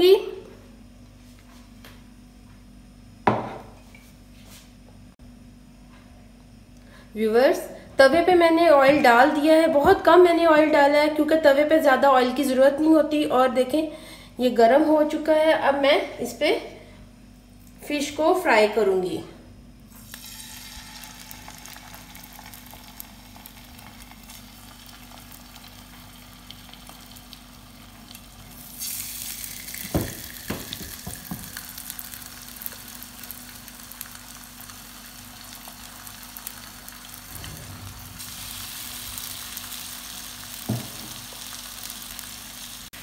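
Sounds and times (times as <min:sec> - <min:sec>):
fish sizzling in hot oil: 0:20.0 - 0:42.9
sharp knocks on pan: 0:29.9 - 0:31.5, 0:40.7 - 0:41.2.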